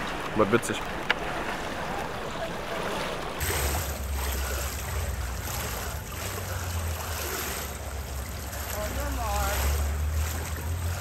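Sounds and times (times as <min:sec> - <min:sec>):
pool water noise: 0:00.0 - 0:11.0
low hum: 0:03.2 - 0:11.0.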